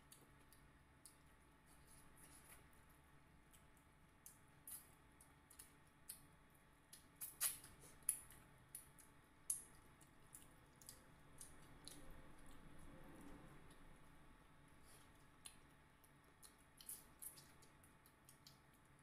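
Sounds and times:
lips smacking while chewing: 6.9 - 12.7.

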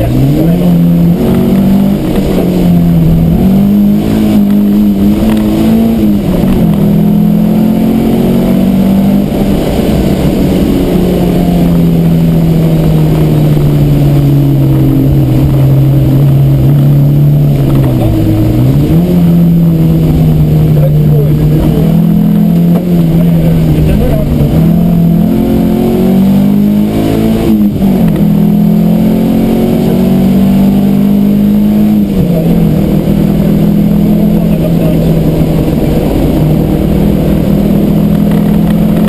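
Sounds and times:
car engine revving from inside cabin: 0.0 - 39.0.

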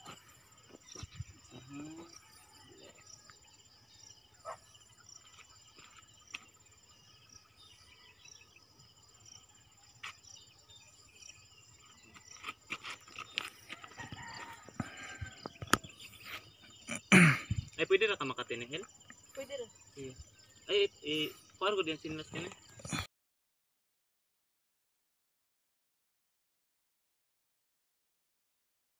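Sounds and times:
insects buzzing: 0.0 - 23.1.

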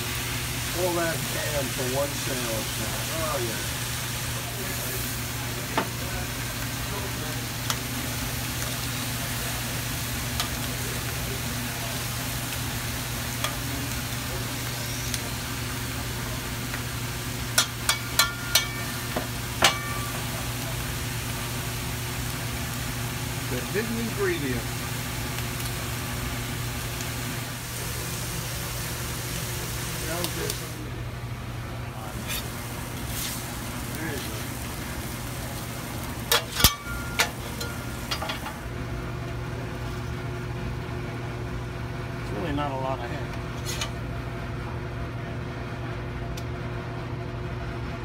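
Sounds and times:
food sizzling on griddle: 0.0 - 40.8
hiss of cooking: 0.0 - 41.4
metal spatula scraping griddle: 32.1 - 33.4, 43.6 - 43.9.

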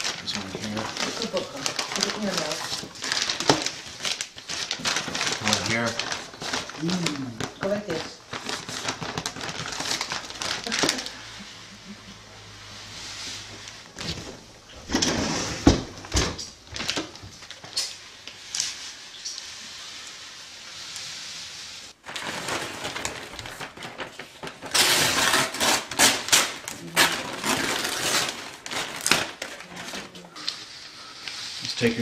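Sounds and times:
tape peeling off wall decal: 14.9 - 32.0.

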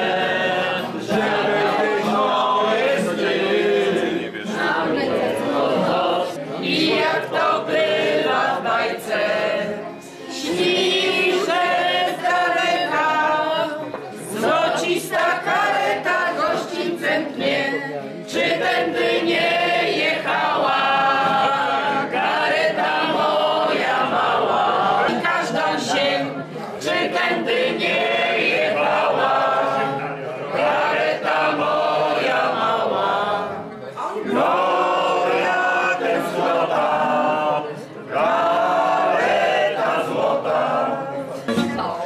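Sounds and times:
group of people singing: 0.0 - 42.0.

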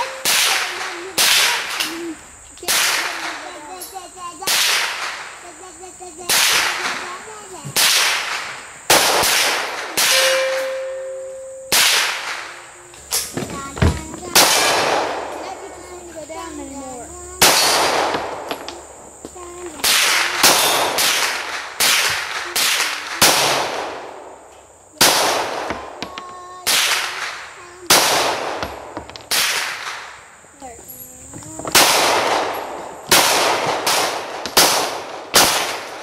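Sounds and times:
gunshots with echo: 0.0 - 1.9, 2.6 - 3.6, 4.4 - 5.5, 6.2 - 13.3, 14.3 - 15.5, 17.4 - 18.7, 19.8 - 24.3, 25.0 - 26.0, 26.6 - 30.2, 31.7 - 36.0.

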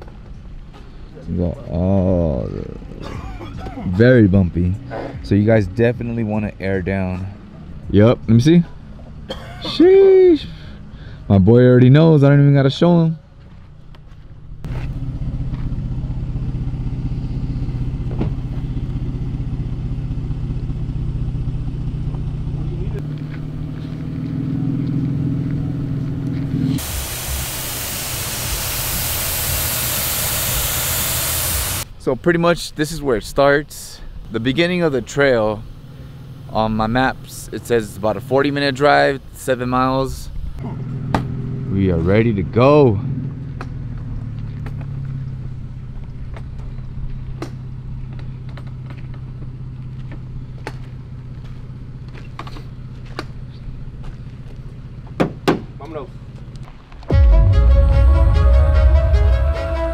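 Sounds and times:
truck engine idling: 13.2 - 59.9
air hissing: 26.6 - 32.0.

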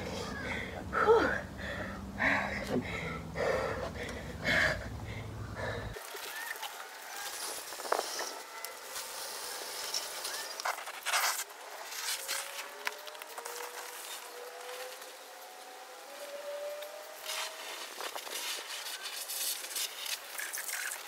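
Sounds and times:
low steady hum: 0.0 - 6.0
woman breathing heavily: 0.0 - 6.0
faint outdoor background: 0.0 - 21.0.

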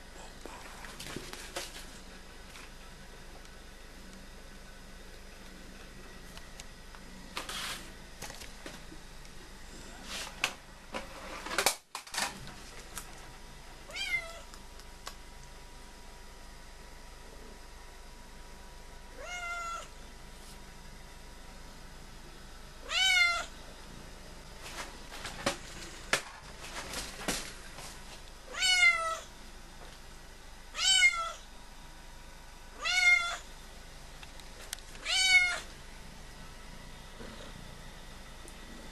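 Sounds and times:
cat meowing: 19.2 - 19.9, 22.8 - 23.5, 28.5 - 29.3, 30.8 - 31.4, 32.8 - 33.4, 35.0 - 35.6.

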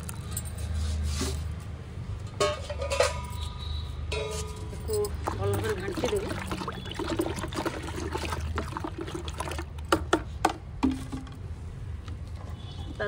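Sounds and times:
liquid sloshing in bucket: 5.0 - 10.3.

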